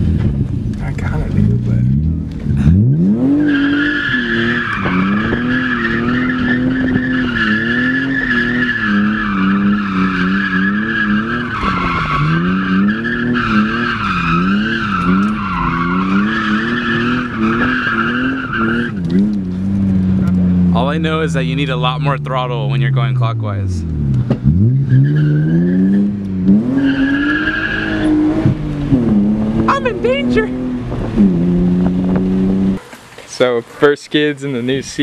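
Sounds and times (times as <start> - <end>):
car engine revving: 0.0 - 34.0.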